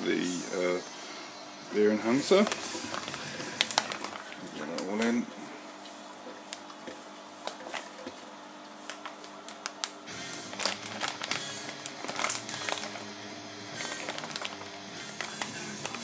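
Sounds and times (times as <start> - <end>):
plastic bag crinkling: 1.8 - 5.3, 6.3 - 16.0
soft background music: 10.1 - 16.0.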